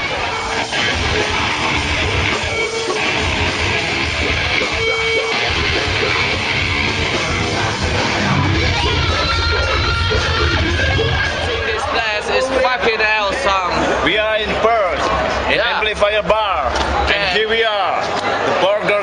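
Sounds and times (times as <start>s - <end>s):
heavy metal band playing live: 0.0s - 12.3s
distorted electric guitar: 0.0s - 14.1s.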